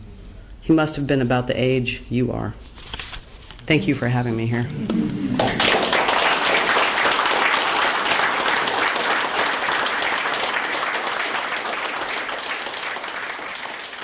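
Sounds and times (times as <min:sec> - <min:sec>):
audience applauding: 0:05.3 - 0:14.0.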